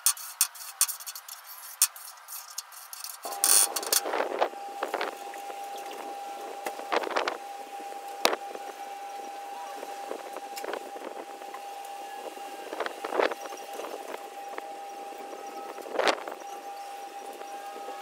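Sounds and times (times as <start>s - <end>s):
clicks and scrapes of handling: 0.0s - 4.2s
steady high hum: 2.8s - 18.0s.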